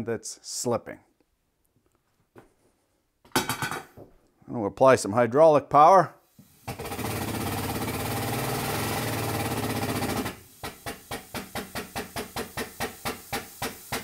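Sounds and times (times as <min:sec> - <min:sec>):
hydraulic pump hissing and humming: 0:06.4 - 0:14.0.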